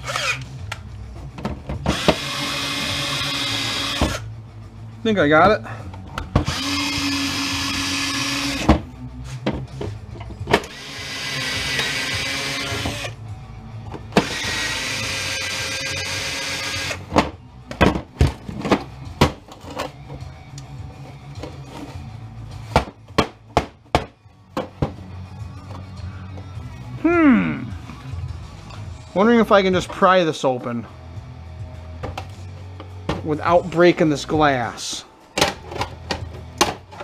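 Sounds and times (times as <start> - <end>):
cordless drill motor whining: 0.0 - 0.5, 1.9 - 4.2, 6.4 - 8.7, 10.7 - 13.2, 14.2 - 17.0.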